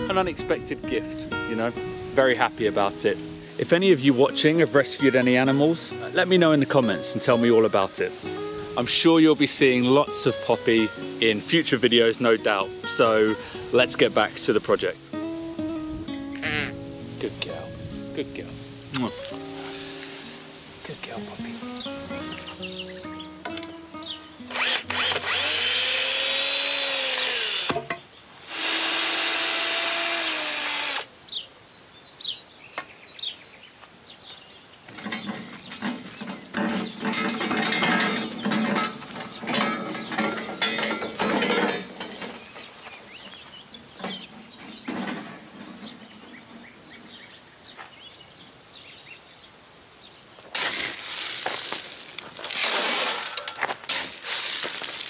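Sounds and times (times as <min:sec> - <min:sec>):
rough scraping crunch: 0:18.4 - 0:22.9, 0:35.0 - 0:47.1, 0:50.5 - 0:55.0
cordless drill whirring: 0:24.5 - 0:27.8, 0:28.5 - 0:31.1
wheelbarrow rattling over rough ground: 0:34.9 - 0:46.9, 0:50.5 - 0:55.0.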